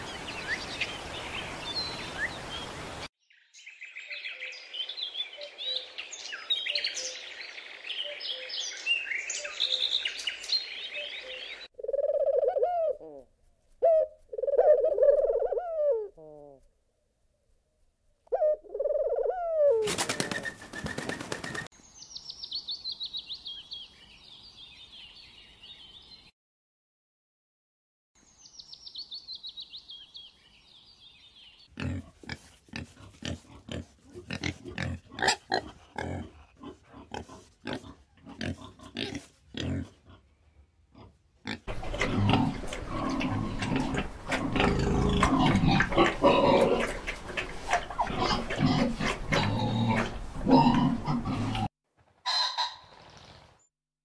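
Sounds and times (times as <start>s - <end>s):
pigs grunting: 31.7s - 40.3s, 40.9s - 51.7s
guineafowl chatter: 45.5s - 51.4s, 52.3s - 52.9s.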